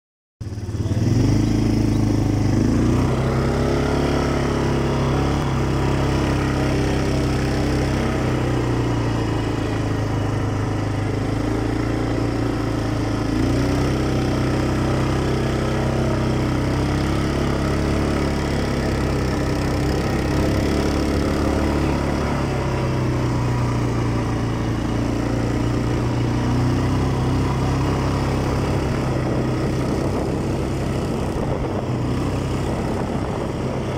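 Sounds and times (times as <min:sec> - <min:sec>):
quad bike engine running: 0:00.4 - 0:33.9.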